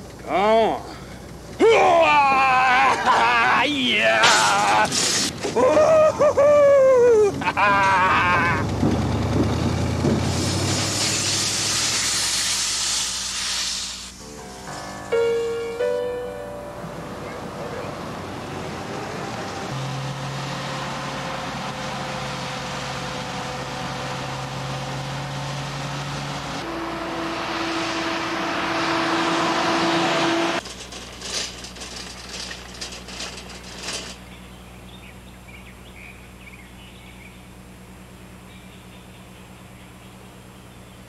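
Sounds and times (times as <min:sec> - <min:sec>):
street traffic: 0:00.0 - 0:41.0
car passing close: 0:14.6 - 0:30.6
shopping cart rattling: 0:30.6 - 0:34.2.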